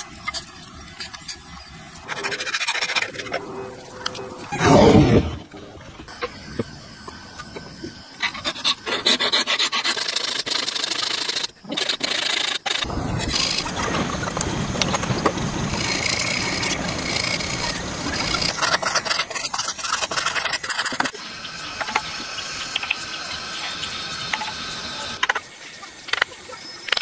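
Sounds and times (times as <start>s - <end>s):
tools scraping and rasping wood: 2.0s - 4.8s, 8.2s - 13.8s, 15.7s - 21.1s
continuous cutting noise: 8.2s - 25.4s.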